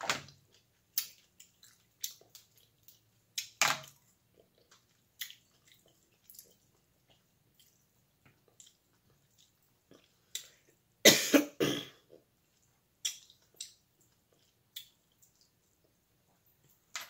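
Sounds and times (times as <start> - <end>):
woman coughing: 11.1 - 12.0.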